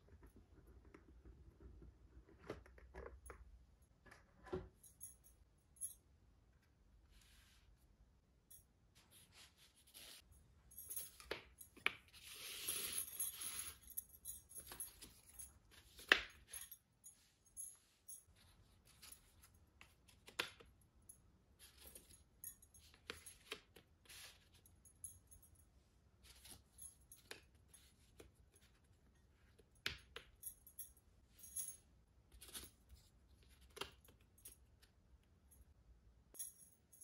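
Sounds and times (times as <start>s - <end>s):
puzzle pieces rustling and sliding: 12.1s - 13.8s.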